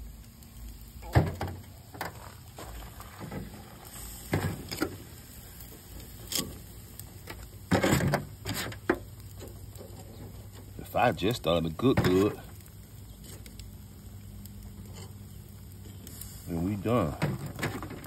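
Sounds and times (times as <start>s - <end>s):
shells and tongs clattering on foil: 5.8s - 13.6s, 14.8s - 18.0s.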